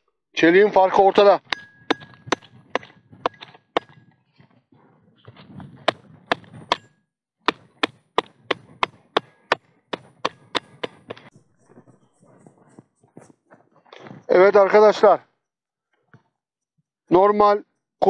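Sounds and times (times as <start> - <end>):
hammer striking axe head: 1.4 - 4.0, 5.9 - 11.3
short metallic ring: 1.5 - 2.3.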